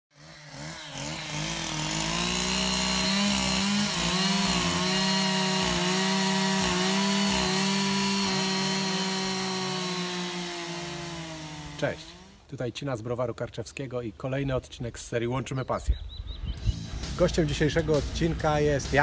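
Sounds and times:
chainsaw engine at high revs: 0.1 - 12.5.

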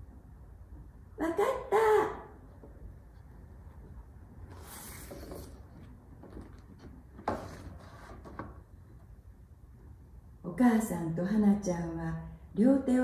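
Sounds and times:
paper card sliding swish: 4.5 - 5.8.

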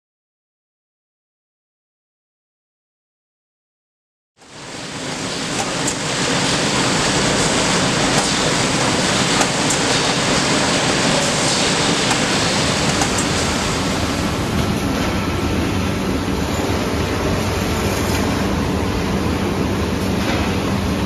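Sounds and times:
bag conveyors running: 4.5 - 21.0.

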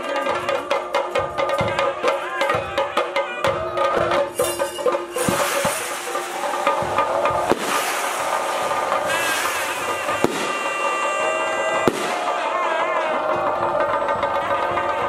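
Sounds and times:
drums in continuous roll: 0.0 - 15.0
sharp drum cracks: 4.0 - 12.5.

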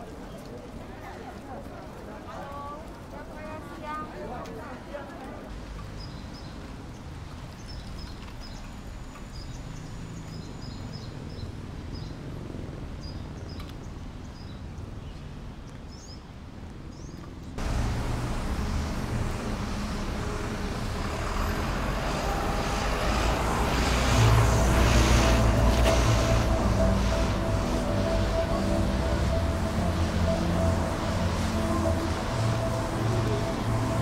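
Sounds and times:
low traffic rumble: 0.0 - 34.0
loud steady hiss: 17.6 - 34.0.

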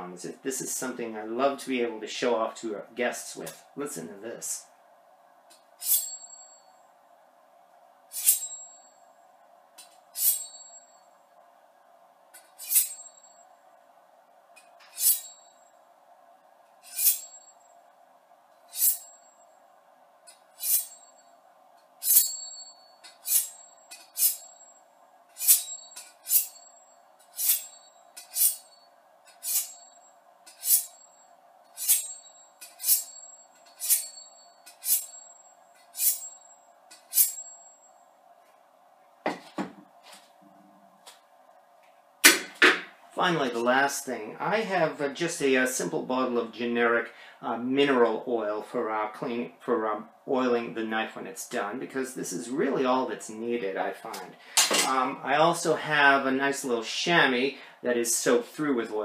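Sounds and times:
knife stroking honing rod: 5.8 - 6.4, 8.1 - 8.8, 10.1 - 10.8, 12.4 - 13.4, 14.8 - 15.5, 16.8 - 17.5, 18.7 - 19.2, 20.3 - 21.2, 22.0 - 24.6, 25.3 - 31.0, 31.7 - 37.6.

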